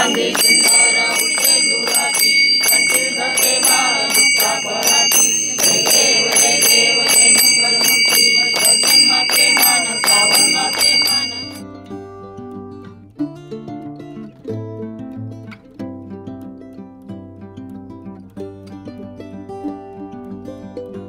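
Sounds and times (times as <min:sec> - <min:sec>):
bell ringing: 0:00.0 - 0:11.6
sharp percussion strikes: 0:00.0 - 0:11.6
voices singing: 0:00.0 - 0:11.6.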